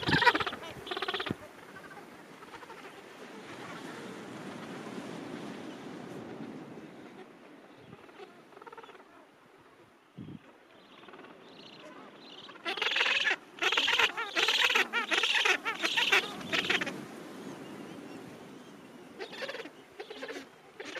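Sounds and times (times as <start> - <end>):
penguins calling: 0.0 - 1.4, 12.6 - 16.9.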